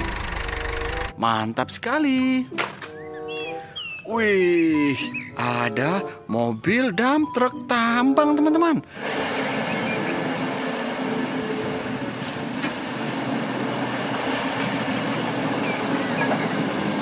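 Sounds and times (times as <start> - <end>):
mining machinery rumbling: 9.0 - 17.0.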